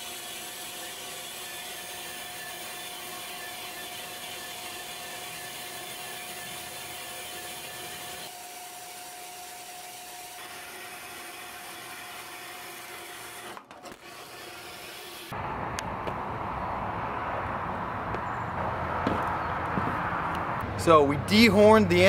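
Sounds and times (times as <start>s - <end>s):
bandsaw cutting metal: 0.0s - 15.4s.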